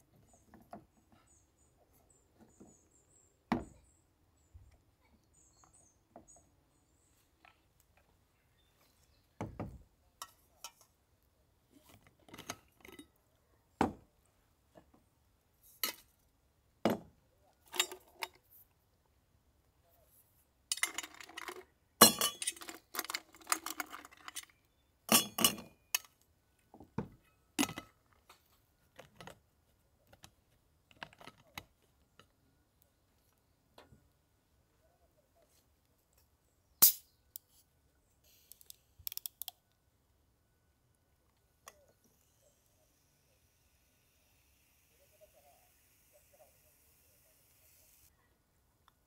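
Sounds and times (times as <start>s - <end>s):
metal jug and cup clinking: 20.7s - 24.5s, 25.1s - 26.1s.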